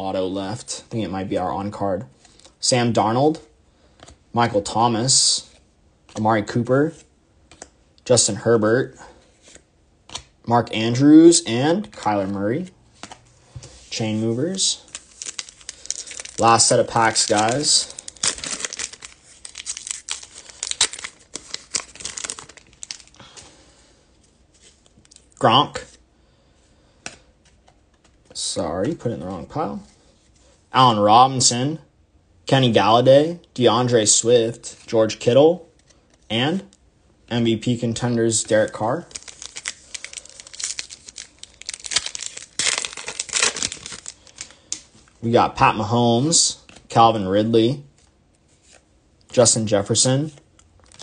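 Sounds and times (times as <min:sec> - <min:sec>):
foil pack crinkling and tearing: 0:14.8 - 0:23.4, 0:38.6 - 0:44.8, 0:50.8 - 0:51.0.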